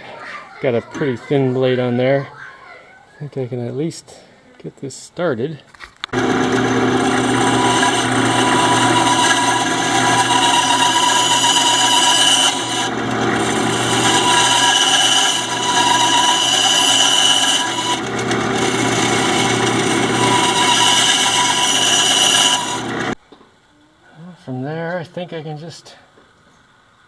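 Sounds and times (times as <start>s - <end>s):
bandsaw cutting plastic: 6.2s - 23.2s.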